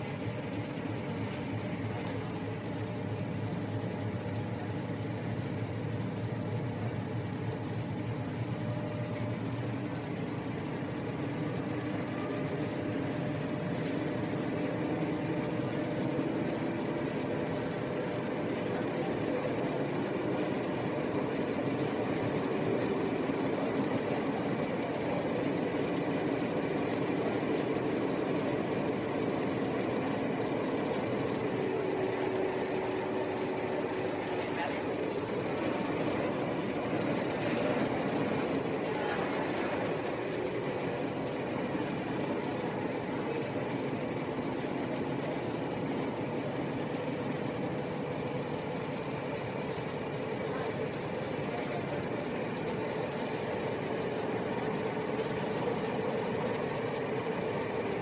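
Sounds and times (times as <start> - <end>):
train wheels and motors rumbling: 0.0 - 58.0.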